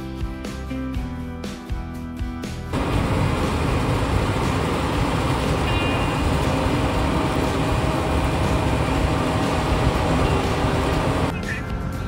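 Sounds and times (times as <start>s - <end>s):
combine harvester running: 2.7s - 11.4s.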